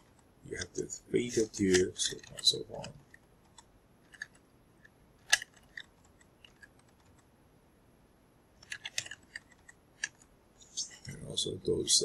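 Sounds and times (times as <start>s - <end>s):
computer keyboard keystrokes: 5.2s - 7.2s, 8.6s - 10.2s.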